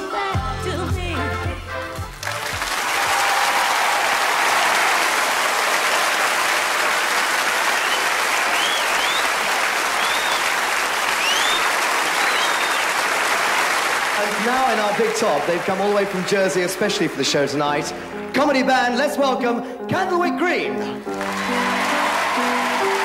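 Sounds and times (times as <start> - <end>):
audience applauding: 2.1 - 18.0, 21.1 - 23.0
short whistles: 7.8 - 9.4, 10.0 - 10.5, 11.2 - 12.9.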